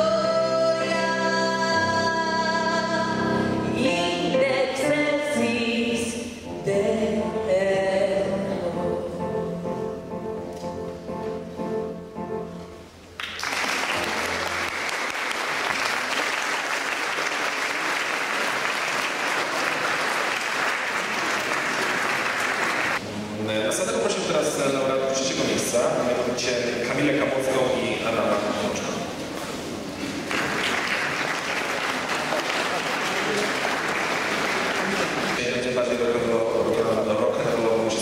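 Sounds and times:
boy singing into a microphone: 0.0 - 9.1
instrumental accompaniment: 0.0 - 15.0, 23.0 - 24.3
audience applause: 13.2 - 23.0, 30.1 - 35.7.

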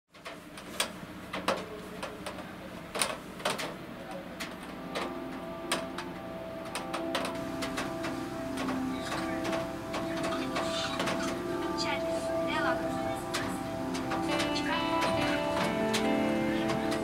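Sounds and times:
raindrops tapping on window: 0.1 - 3.8, 4.4 - 17.0.

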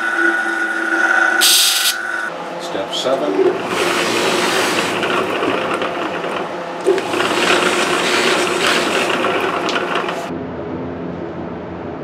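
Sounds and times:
buffing wheel grinding metal: 0.0 - 2.3, 3.0 - 10.3
bench motor hum: 0.0 - 2.4, 3.1 - 10.3.

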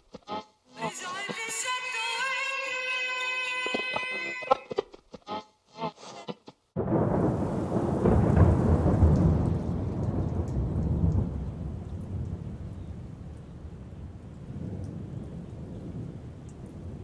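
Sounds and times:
steady rain: 6.8 - 17.0
thunder rumbling: 6.8 - 17.0.

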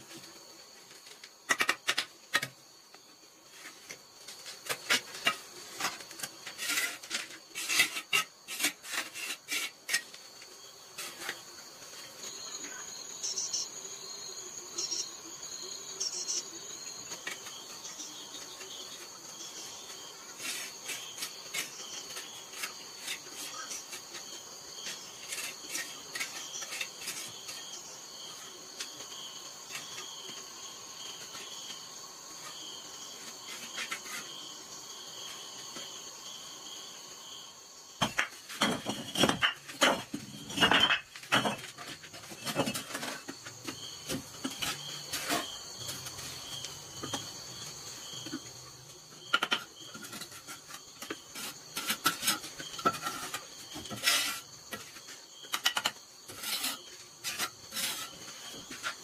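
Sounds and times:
crickets chirping: 0.0 - 59.0
bricks clinking and knocking: 38.0 - 45.5, 49.2 - 59.0.

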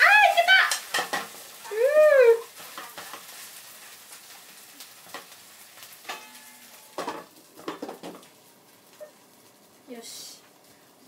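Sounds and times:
pancake sizzling in oil: 0.0 - 11.0
spatula and pan lid clinks: 6.0 - 7.2.

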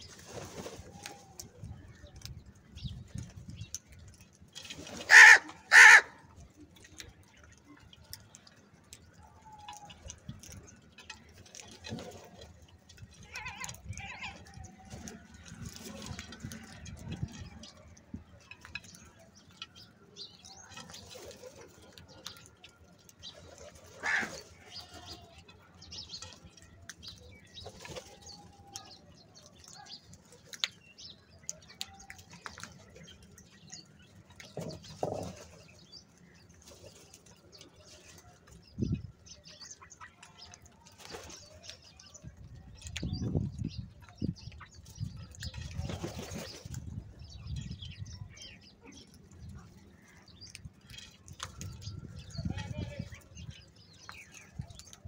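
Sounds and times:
wings flapping: 0.0 - 1.5, 23.3 - 25.1, 45.5 - 46.8
crow calls: 5.1 - 6.2, 24.0 - 24.4.

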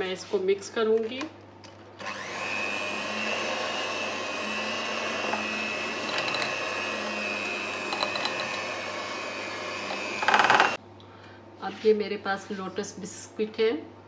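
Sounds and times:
hand mixer motor whine: 2.0 - 10.8
mixer rattle: 2.1 - 10.8.

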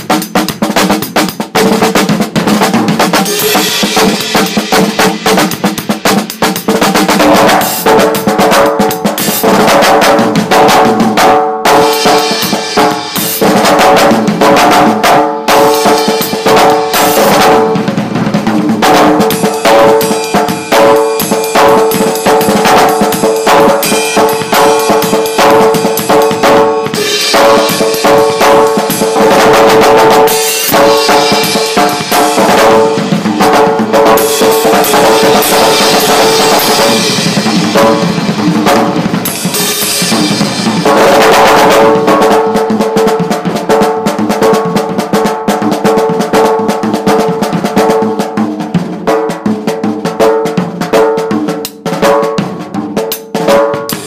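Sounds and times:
drum kit played fast: 0.0 - 54.0
cymbal crashes: 3.2 - 6.4, 18.8 - 42.0.

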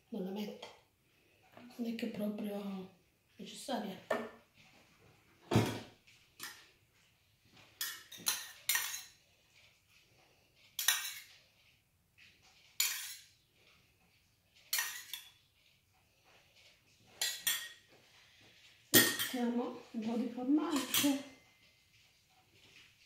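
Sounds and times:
metal spoon scraping a pot: 7.8 - 9.2, 10.8 - 11.4, 12.7 - 13.4, 14.7 - 15.4, 17.1 - 17.9.

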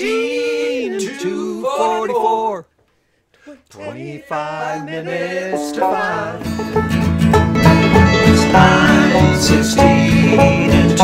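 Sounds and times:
banjo picking: 4.5 - 11.0
acoustic guitar: 5.6 - 11.0
upright bass notes: 6.1 - 11.0.

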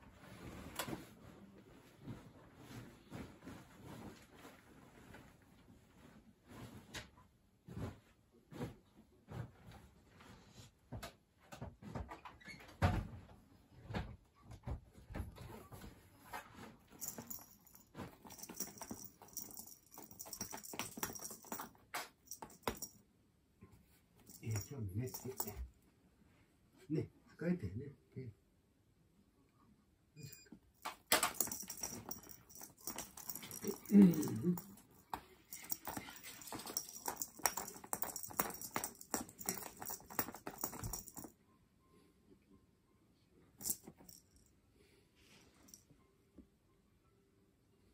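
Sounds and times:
toy rustling and tapping on mats: 14.5 - 23.0, 24.2 - 25.7, 30.8 - 41.3, 43.6 - 44.4.

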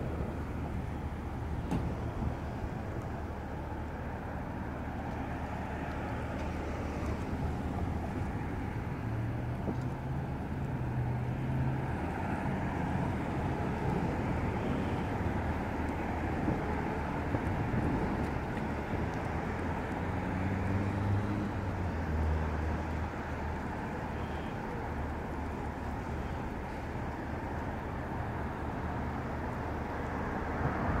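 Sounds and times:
passing traffic hum: 0.0 - 31.0
car engine pulling away: 16.8 - 23.1.

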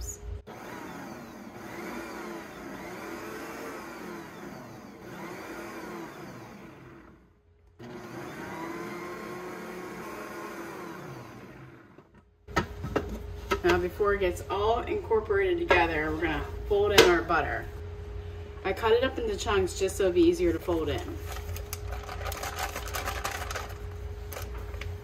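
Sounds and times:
stand mixer kneading dough: 0.5 - 7.2, 7.8 - 12.2.

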